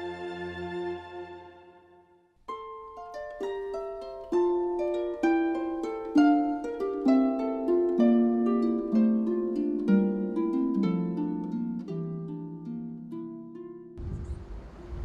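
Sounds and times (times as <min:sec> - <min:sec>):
plucked zither notes: 0:02.5 - 0:14.0.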